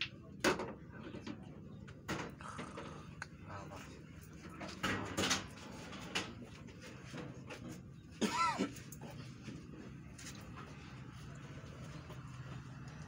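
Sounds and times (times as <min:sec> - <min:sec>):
low crowd noise: 0:00.0 - 0:13.0.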